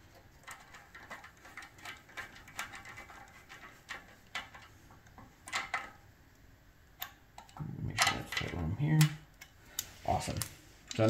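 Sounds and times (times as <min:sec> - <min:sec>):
nut driver metal clicks and scrapes: 0:00.4 - 0:04.7.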